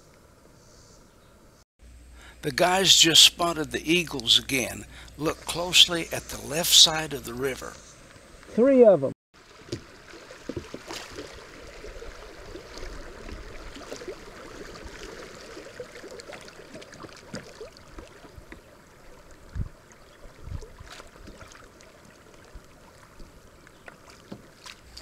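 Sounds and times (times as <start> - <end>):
river water burbling: 2.2 - 8.4, 9.4 - 25.0.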